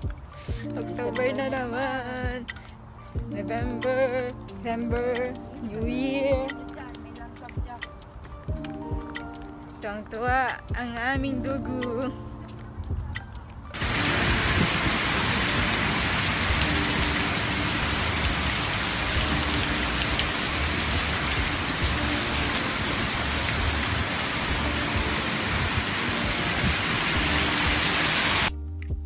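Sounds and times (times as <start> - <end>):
heavy rain hissing: 0.0 - 3.1, 13.7 - 28.6.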